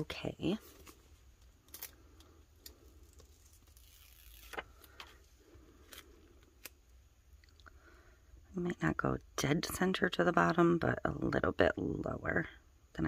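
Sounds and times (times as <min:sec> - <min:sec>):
vinyl sheet crinkling: 0:00.4 - 0:07.0.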